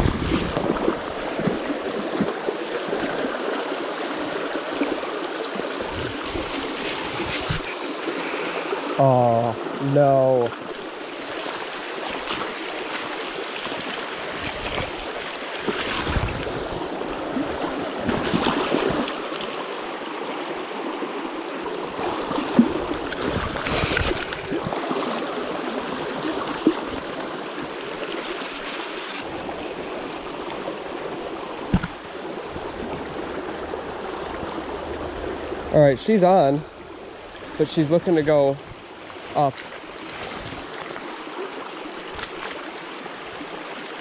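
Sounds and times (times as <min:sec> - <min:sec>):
creek water rushing over stones: 0:00.0 - 0:44.0.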